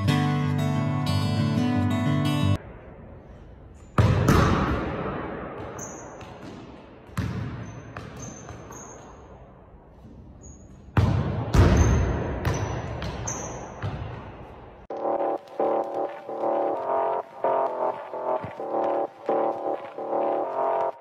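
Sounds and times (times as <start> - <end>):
ball kicked against walls echoing: 3.9 - 9.0, 10.8 - 14.6
sneakers squeaking on hardwood: 7.2 - 9.2.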